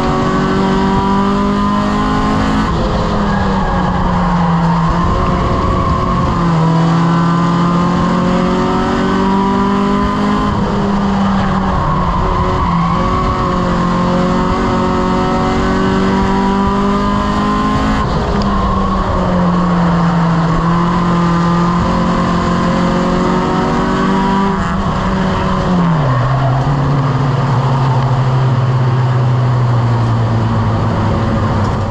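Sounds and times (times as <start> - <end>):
race car engine revving: 0.0 - 31.9.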